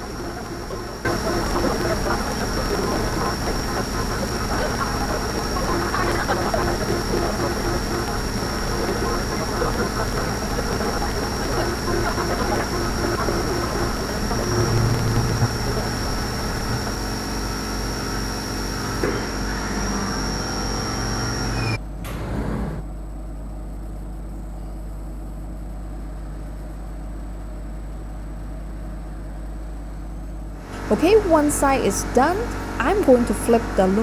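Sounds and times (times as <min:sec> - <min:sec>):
high-pitched spindle whine: 0:00.0 - 0:21.8, 0:30.6 - 0:34.0
milling machine cutting metal: 0:00.0 - 0:21.8
low machine hum: 0:00.0 - 0:34.0.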